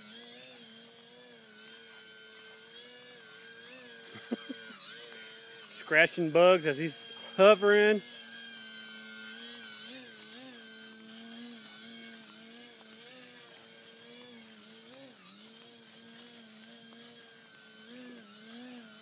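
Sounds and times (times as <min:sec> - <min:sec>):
model airplane motor buzzing: 0:00.0 - 0:19.0.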